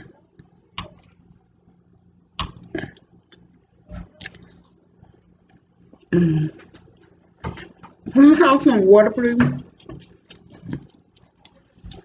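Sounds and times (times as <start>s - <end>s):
chewing: 2.4s - 7.9s, 9.6s - 12.0s
person vocal sound: 6.1s - 6.6s.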